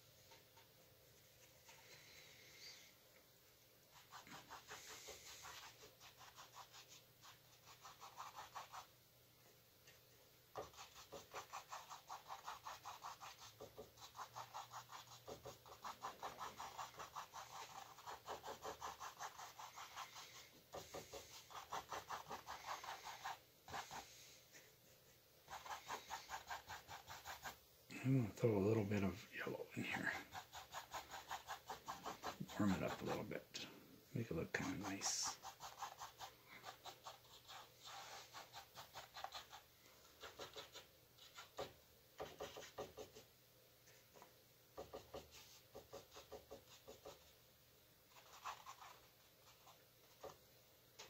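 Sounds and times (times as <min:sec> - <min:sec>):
paintbrush scrubbing on canvas: 0:03.9 - 0:08.9, 0:10.6 - 0:43.3, 0:48.1 - 0:50.4.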